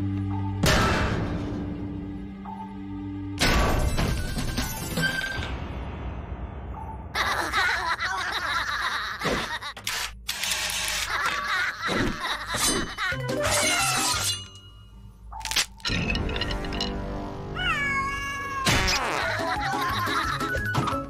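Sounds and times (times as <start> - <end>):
cartoon music: 17.4 - 21.0.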